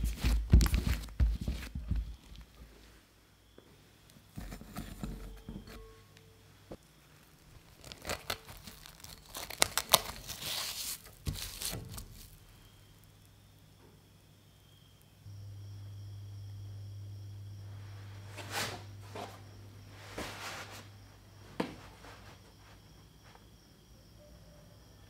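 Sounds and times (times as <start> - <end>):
cling film crackling: 7.2 - 13.1.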